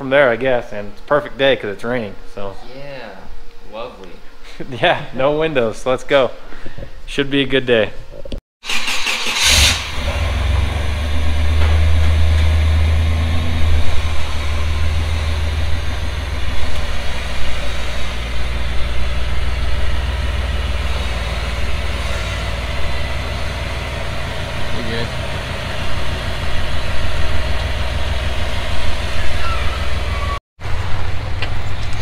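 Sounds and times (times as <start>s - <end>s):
engine starting and idling: 8.6s - 13.3s.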